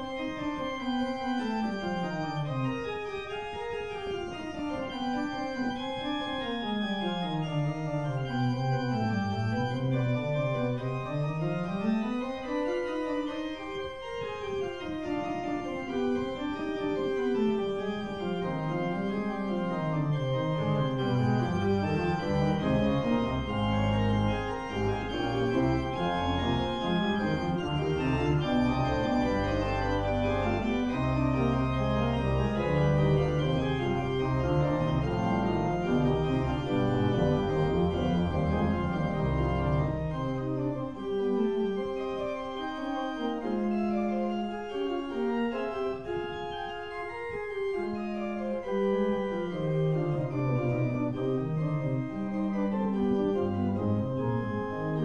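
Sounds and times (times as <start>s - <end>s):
organ melody over chords: 0.0s - 55.0s
deep organ bass notes: 19.8s - 41.1s.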